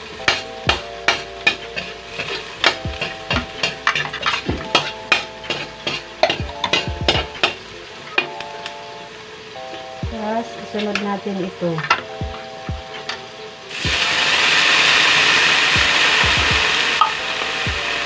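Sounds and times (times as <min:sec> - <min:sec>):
food sizzling in oil: 0:00.0 - 0:18.0
metal spatula scraping wok: 0:00.1 - 0:10.0.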